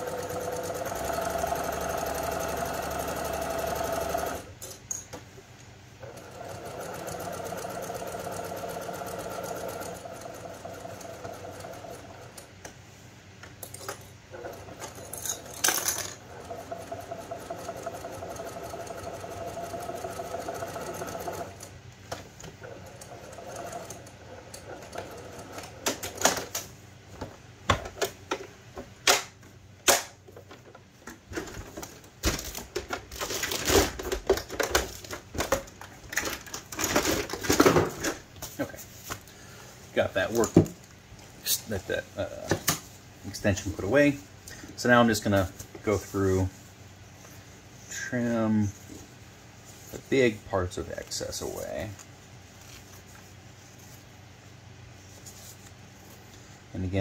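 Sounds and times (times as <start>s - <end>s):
sewing machine stitching: 0.0s - 4.5s, 6.0s - 12.4s, 16.2s - 21.7s, 22.6s - 26.0s.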